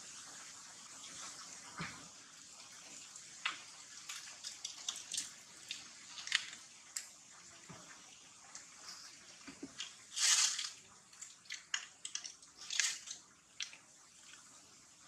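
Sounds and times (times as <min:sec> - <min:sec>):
steady high hiss: 0:00.0 - 0:11.4.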